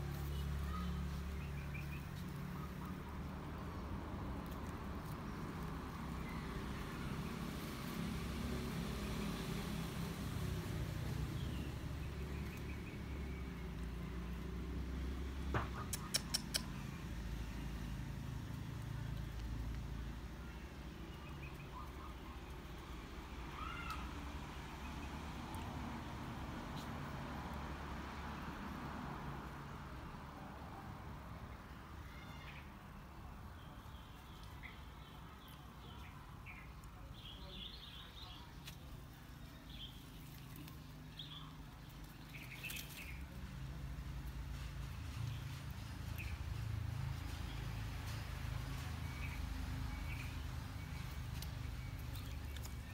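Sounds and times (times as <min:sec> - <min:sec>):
quick sharp clicks: 0:15.7 - 0:16.8.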